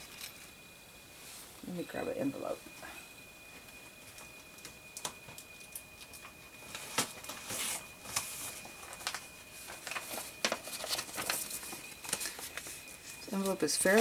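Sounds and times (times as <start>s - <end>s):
paper rustling: 6.6s - 14.0s.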